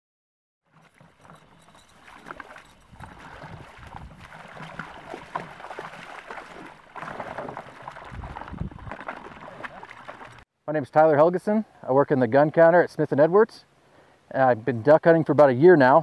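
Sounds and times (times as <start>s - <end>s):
wading splashes in water: 0.7s - 10.4s.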